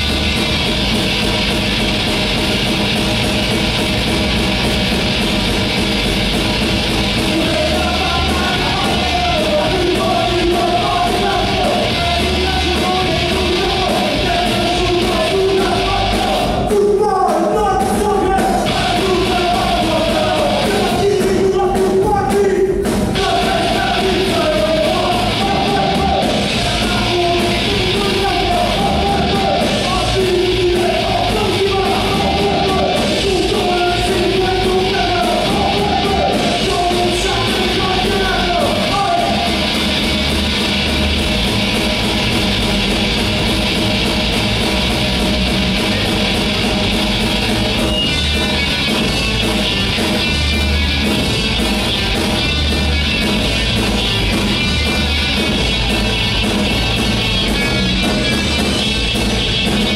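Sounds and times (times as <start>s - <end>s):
bass guitar: 0.0s - 59.9s
drum kit: 0.0s - 59.9s
electric guitar: 0.0s - 59.9s
person singing: 7.3s - 39.7s.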